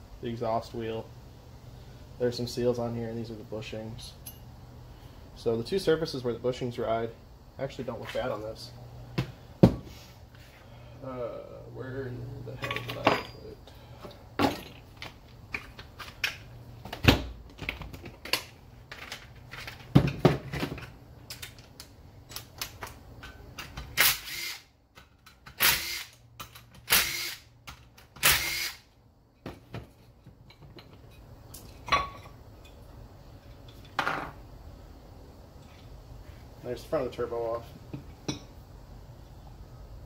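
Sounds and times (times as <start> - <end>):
tools clattering on metal bench: 12.6 - 13.5, 29.5 - 32.8
cordless drill bursts: 24.0 - 24.7, 25.6 - 26.2, 26.9 - 27.5, 28.2 - 28.9.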